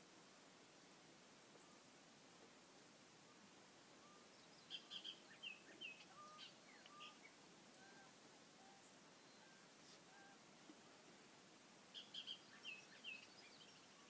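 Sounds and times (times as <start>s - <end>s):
birds chirping: 4.0s - 10.4s, 11.9s - 14.0s
whistled bird notes: 4.0s - 10.4s.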